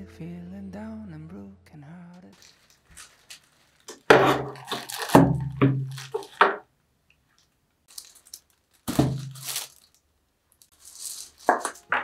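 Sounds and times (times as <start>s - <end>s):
plastic wrap rustling: 2.3s - 6.7s, 7.9s - 12.0s.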